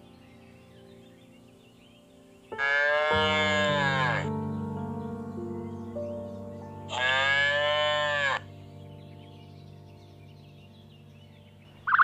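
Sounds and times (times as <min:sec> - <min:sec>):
cow mooing: 0:02.6 - 0:04.3, 0:06.9 - 0:08.4.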